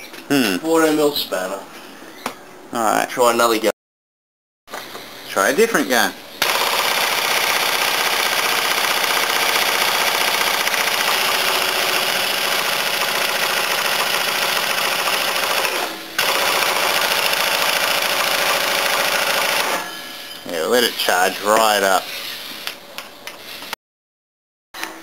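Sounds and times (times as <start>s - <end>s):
pneumatic impact wrench hammering: 6.4s - 19.8s.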